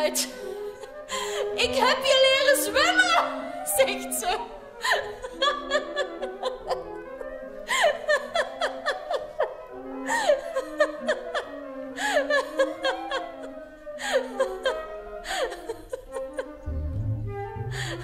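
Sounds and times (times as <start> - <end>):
held music notes: 0.0 - 18.0
girl giggling: 4.9 - 7.0, 7.8 - 9.6.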